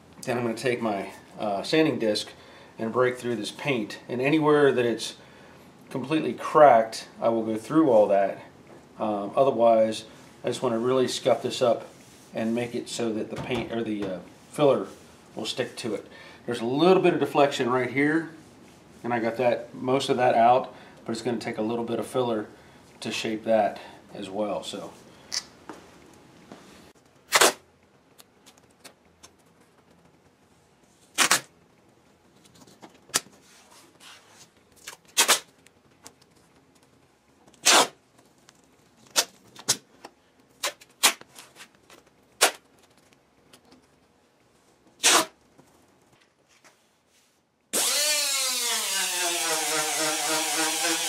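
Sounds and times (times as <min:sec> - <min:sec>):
masking tape ripping: 0:27.2 - 0:27.7, 0:31.1 - 0:31.5, 0:34.8 - 0:35.6, 0:37.6 - 0:38.0, 0:39.0 - 0:39.8, 0:40.6 - 0:41.7, 0:42.3 - 0:42.7, 0:45.0 - 0:45.4
air-powered sanding disc running: 0:47.8 - 0:51.0.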